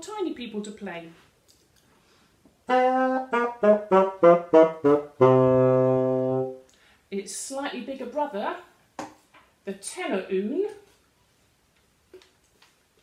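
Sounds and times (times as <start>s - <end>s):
small bassoon playing: 2.7s - 6.6s.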